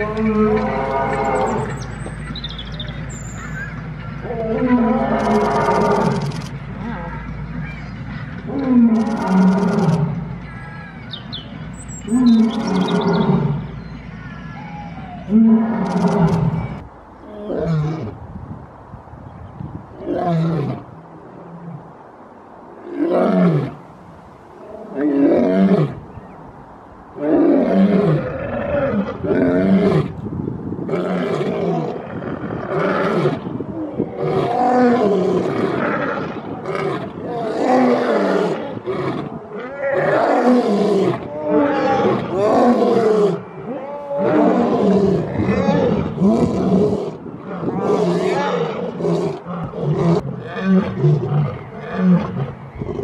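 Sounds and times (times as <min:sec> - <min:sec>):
lions roaring: 0:34.1 - 0:53.0.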